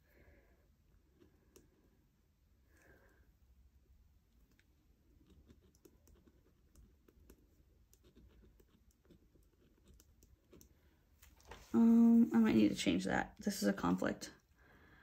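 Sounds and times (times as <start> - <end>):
pen scratching on paper: 5.1 - 10.6.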